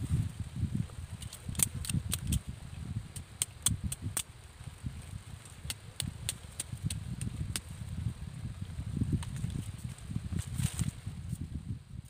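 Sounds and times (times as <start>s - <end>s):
low rumble: 0.0s - 4.0s
machete cutting plant stem: 1.2s - 2.4s, 3.2s - 4.3s.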